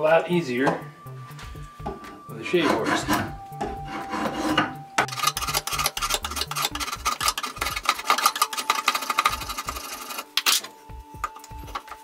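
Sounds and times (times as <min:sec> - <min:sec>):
drawknife scraping wood: 0:02.6 - 0:09.3.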